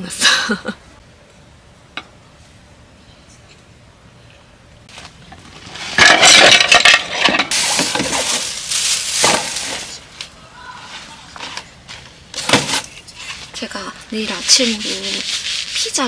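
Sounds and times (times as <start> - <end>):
plastic bag rustling: 4.9 - 10.1, 14.1 - 16.0
utensils clattering on wooden plate: 6.0 - 8.6.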